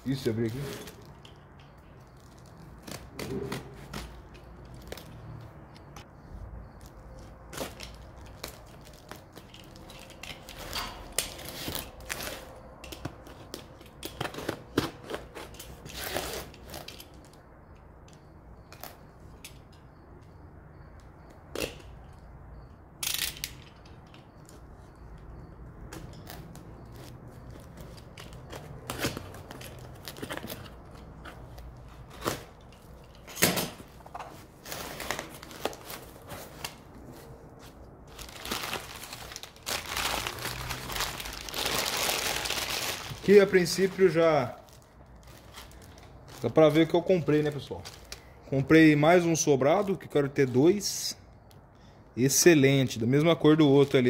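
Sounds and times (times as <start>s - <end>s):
cardboard and tape ripping: 38.1s - 43.5s.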